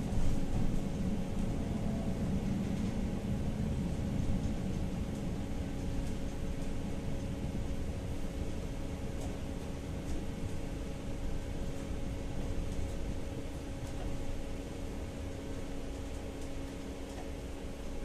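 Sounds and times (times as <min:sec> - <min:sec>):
faint steady hum: 0:00.0 - 0:18.0
tram wheels rumbling on rail: 0:00.0 - 0:18.0.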